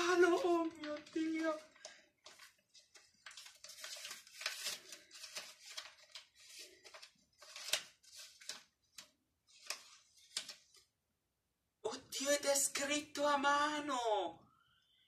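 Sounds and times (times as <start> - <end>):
wrapping paper rustling: 0.0 - 10.9.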